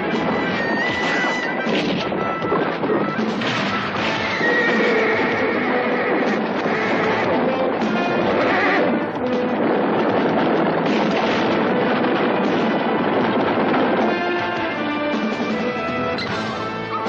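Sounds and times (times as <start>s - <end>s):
action music: 0.0s - 17.0s
horses galloping: 0.0s - 17.0s
horse whinnying: 0.4s - 9.0s.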